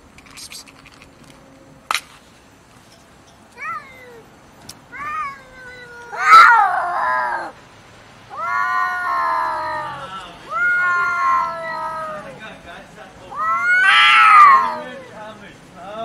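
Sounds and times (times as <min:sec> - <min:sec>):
cats yowling: 0:03.6 - 0:04.3, 0:04.9 - 0:07.6, 0:08.3 - 0:12.4, 0:13.3 - 0:15.2.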